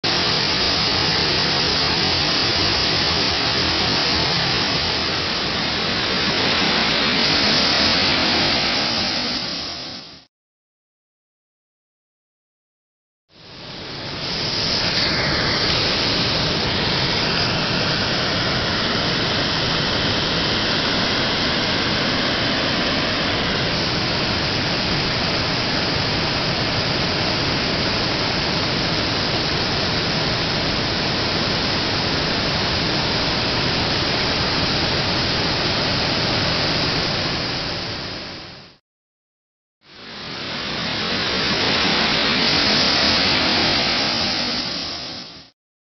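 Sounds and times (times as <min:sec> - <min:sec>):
muddy water rushing: 0:00.0 - 0:10.3, 0:13.4 - 0:38.7, 0:39.9 - 0:45.5.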